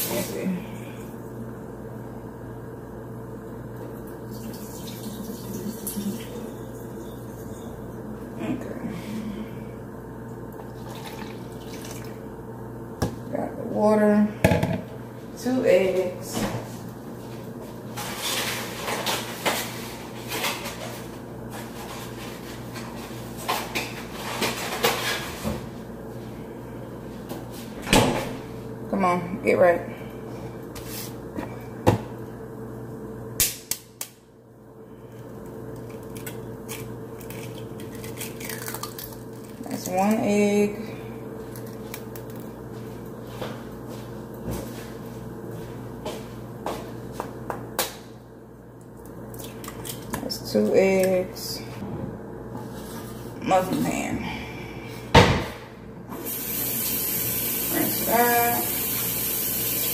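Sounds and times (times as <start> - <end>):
low electrical hum: 0.0 - 59.9
kitchen items knocking and clattering: 14.4 - 14.9.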